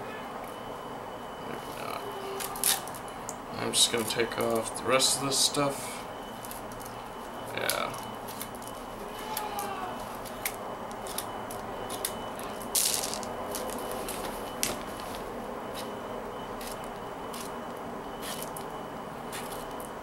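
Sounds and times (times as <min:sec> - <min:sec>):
plastic beads clicking and rattling: 0:10.2 - 0:13.8.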